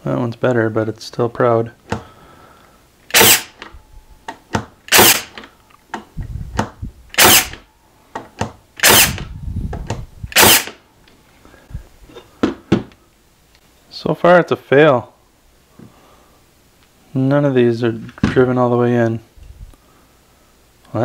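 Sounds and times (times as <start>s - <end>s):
pin nailer firing: 3.1s - 3.7s, 4.9s - 5.4s, 7.1s - 7.6s, 8.8s - 9.2s, 10.3s - 10.8s.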